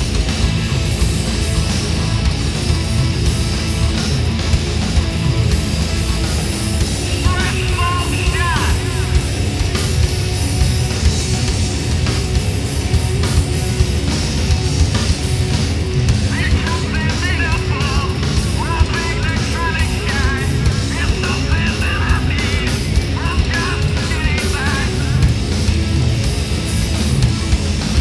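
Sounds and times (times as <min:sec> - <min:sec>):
rock band playing: 0:00.0 - 0:28.0
man shouting through megaphone: 0:07.1 - 0:09.2.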